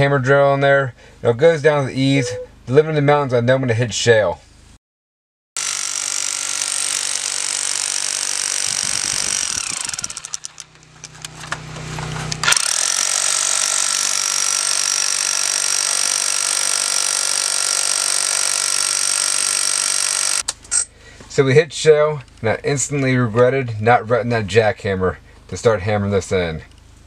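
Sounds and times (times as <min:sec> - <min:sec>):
hammer drill hammering: 0:05.6 - 0:20.4.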